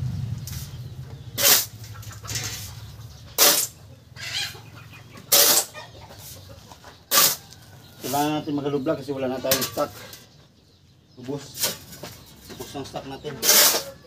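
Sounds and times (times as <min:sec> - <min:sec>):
shovel scraping sand and cement: 0:00.5 - 0:00.8, 0:01.4 - 0:03.8, 0:05.3 - 0:06.4, 0:07.1 - 0:07.4, 0:08.0 - 0:08.5, 0:11.4 - 0:12.2, 0:13.3 - 0:14.0.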